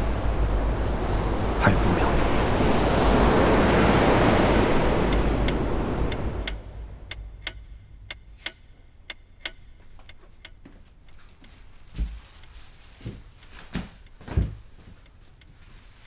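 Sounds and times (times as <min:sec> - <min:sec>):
sharp ticking: 0:05.0 - 0:11.6.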